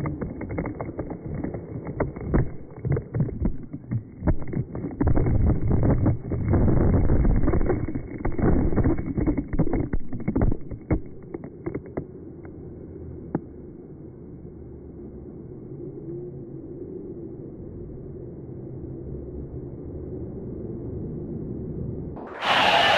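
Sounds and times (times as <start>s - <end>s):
slowed water rushing and splashing: 0.0s - 12.8s.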